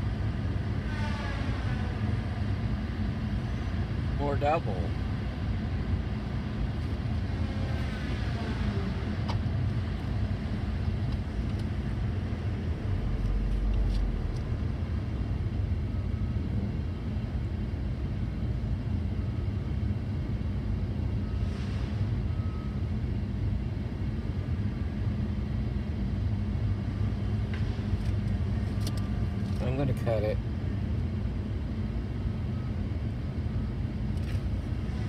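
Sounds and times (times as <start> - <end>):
diesel engine rumbling: 0.0 - 35.0
rising and falling whine: 11.2 - 17.0.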